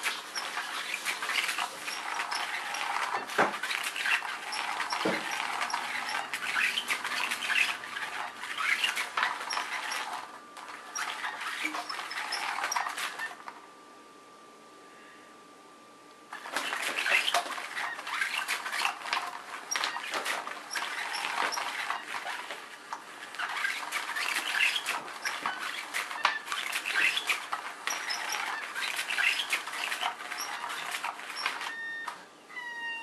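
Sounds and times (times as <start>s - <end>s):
nylon fabric rustling: 0.0s - 13.2s.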